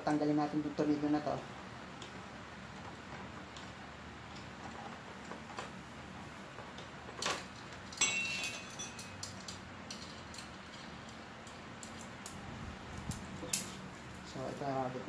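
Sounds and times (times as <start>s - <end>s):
metal tool clinking on screw: 7.9s - 11.2s.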